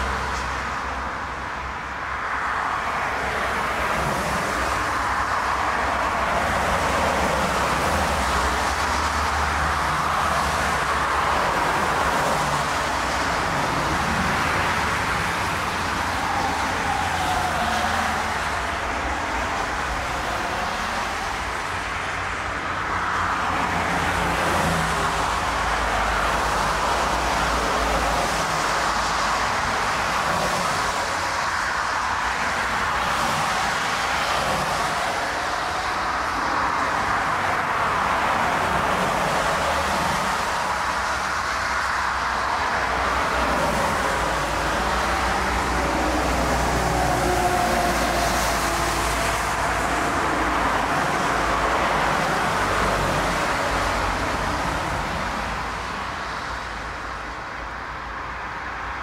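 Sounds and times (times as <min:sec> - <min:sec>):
jet engines roaring: 0:03.6 - 0:21.3, 0:42.6 - 0:55.2.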